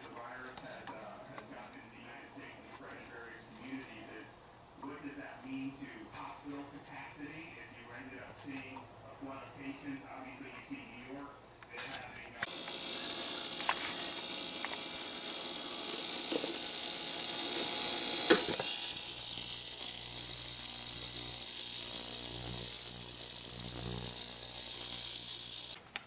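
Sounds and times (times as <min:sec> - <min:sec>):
ultrasonic cleaner hiss and buzz: 0:12.5 - 0:25.8.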